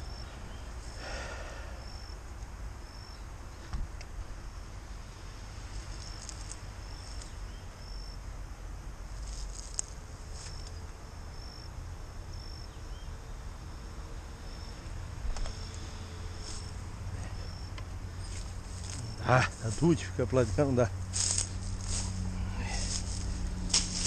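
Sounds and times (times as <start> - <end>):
insect chirping: 0.0 - 19.8, 20.9 - 24.0
steady low rumble: 14.5 - 24.0.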